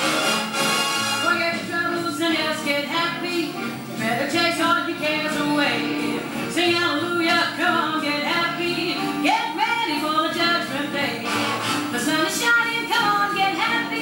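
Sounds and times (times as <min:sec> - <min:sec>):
instrumental accompaniment: 0:00.0 - 0:14.0
woman singing: 0:01.2 - 0:14.0.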